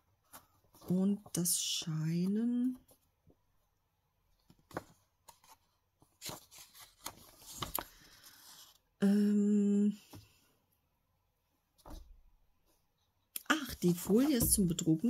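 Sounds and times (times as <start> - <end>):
paper rustling: 4.4 - 8.8
woman humming: 9.0 - 10.0.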